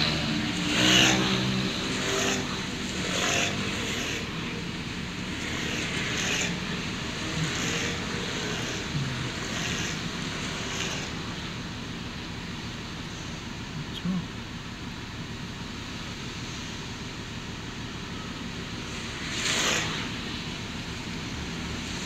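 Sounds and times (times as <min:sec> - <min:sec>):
faint low voice: 0:13.7 - 0:14.4.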